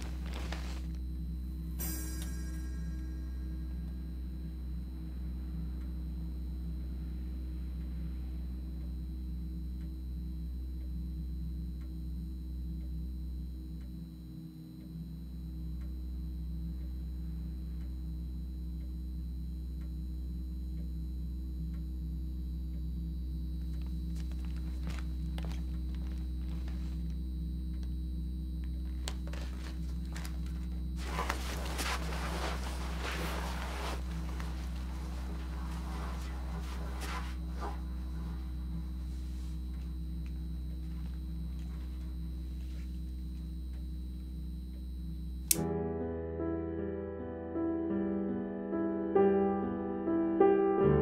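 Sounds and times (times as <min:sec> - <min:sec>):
low drone: 0:00.0 - 0:47.7
faint ticks: 0:08.6 - 0:24.8
rustling and clicking: 0:28.7 - 0:38.4.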